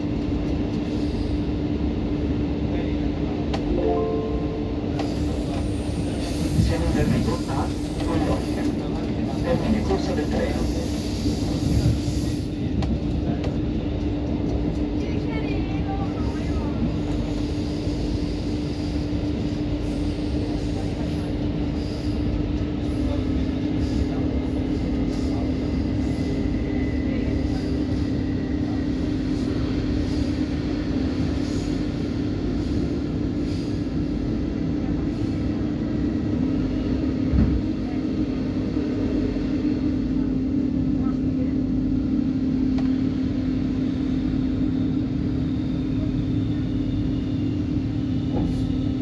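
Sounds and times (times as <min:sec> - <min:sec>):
train wheels rumbling on track: 0:00.0 - 0:49.0.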